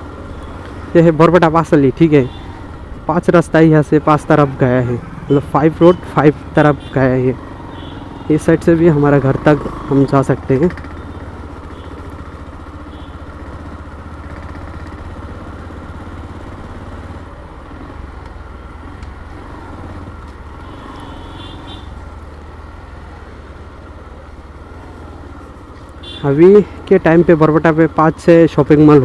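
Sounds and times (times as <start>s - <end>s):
motorcycle engine running: 3.8s - 29.0s.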